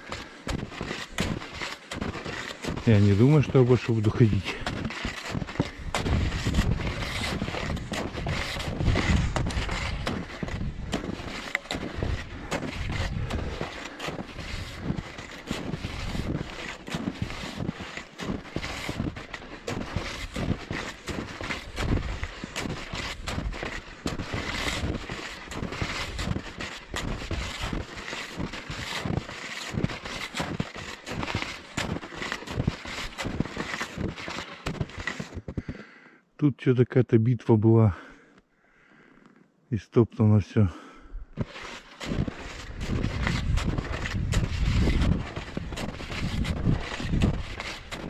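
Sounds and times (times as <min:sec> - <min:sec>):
skis crunching through snow: 0:00.0 - 0:35.9, 0:41.3 - 0:48.0
wind rumbling on microphone: 0:05.7 - 0:11.3, 0:42.5 - 0:48.0
wind buffeting microphone: 0:42.7 - 0:47.6.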